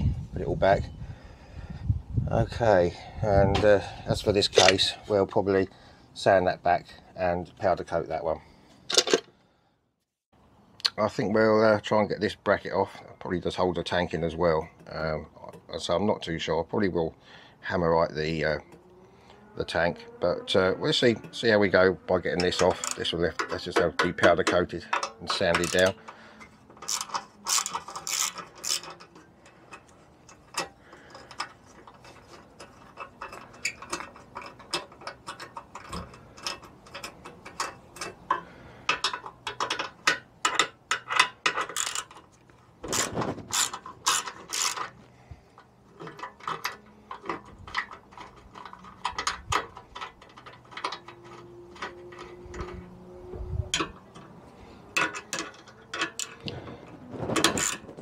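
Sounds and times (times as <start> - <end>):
ratcheting screwdriver clicking: 26.8 - 38.1, 42.9 - 44.9.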